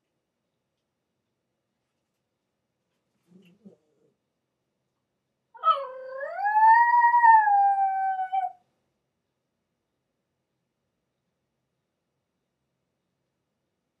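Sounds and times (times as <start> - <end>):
small dog howling: 5.6 - 8.6.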